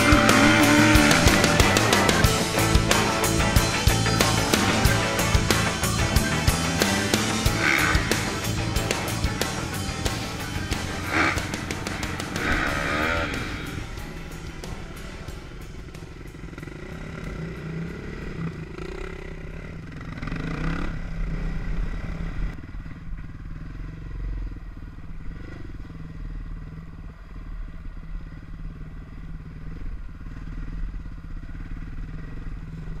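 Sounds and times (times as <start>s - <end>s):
dirt bike engine revving: 0.0s - 22.5s.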